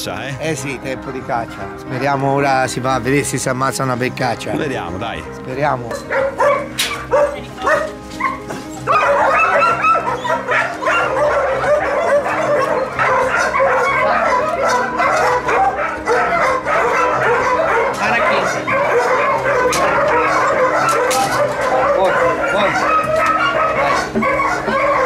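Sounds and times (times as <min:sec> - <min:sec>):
background music: 0:00.0 - 0:25.0
dogs barking and yelping: 0:05.6 - 0:25.0.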